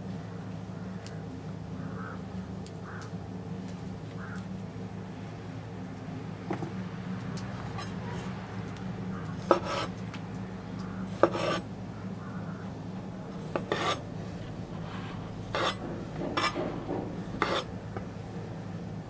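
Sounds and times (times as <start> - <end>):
knife slicing onto wooden board: 9.5 - 9.9, 13.6 - 14.0, 17.4 - 17.7.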